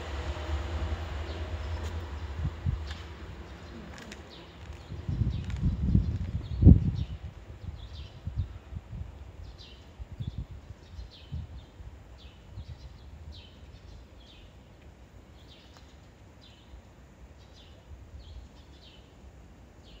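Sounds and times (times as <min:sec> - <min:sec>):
small birds chirping: 0:09.2 - 0:19.2.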